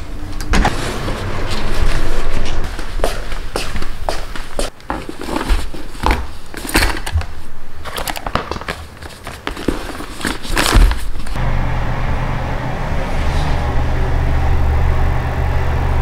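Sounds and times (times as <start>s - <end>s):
low machine hum: 0.0s - 4.1s, 11.4s - 16.0s.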